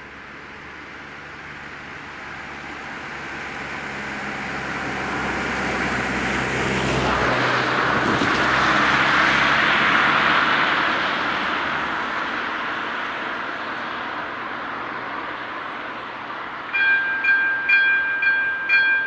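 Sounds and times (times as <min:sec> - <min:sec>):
car engine hum: 0:00.0 - 0:19.0
tyre noise on road: 0:00.0 - 0:19.0.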